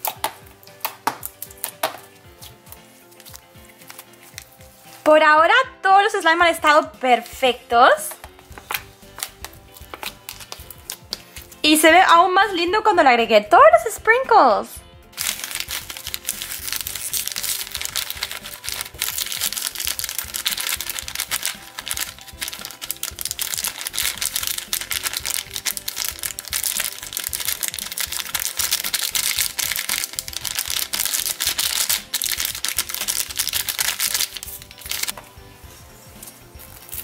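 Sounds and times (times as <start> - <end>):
background music: 0.0 - 37.0
foam beads crackling onto slime: 15.2 - 35.1
plastic bag crinkling: 15.2 - 35.2.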